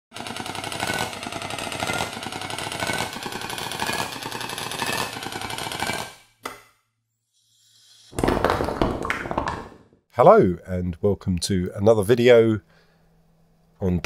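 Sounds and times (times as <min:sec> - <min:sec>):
rapid rattling electronic texture: 0:00.1 - 0:06.1.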